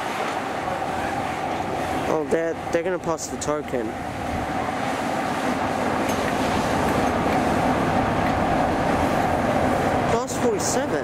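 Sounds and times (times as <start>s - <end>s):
train rumbling on rails: 3.9s - 11.0s.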